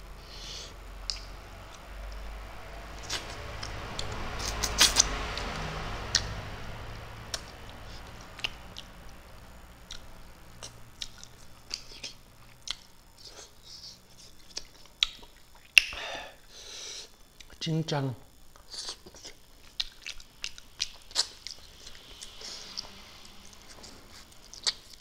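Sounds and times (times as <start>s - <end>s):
man chewing and lip smacking: 1.0s - 2.2s, 7.3s - 9.2s, 9.8s - 16.0s, 17.4s - 17.6s, 18.5s - 25.0s.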